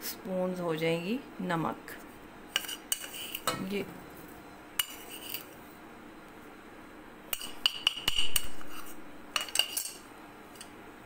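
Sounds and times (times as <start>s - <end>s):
metal spoon scraping pot: 2.5s - 3.7s, 4.8s - 5.6s, 7.3s - 10.0s.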